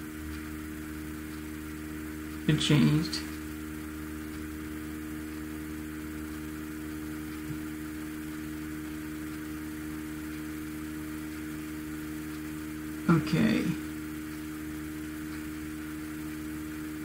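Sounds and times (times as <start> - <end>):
electrical hum: 0.0 - 17.0
faint tick: 0.2 - 1.5, 2.2 - 2.4, 3.2 - 4.5, 5.2 - 5.5, 6.3 - 6.5, 7.3 - 7.7, 9.3 - 9.6, 10.2 - 10.5, 11.3 - 11.5, 12.3 - 12.6, 14.2 - 17.0.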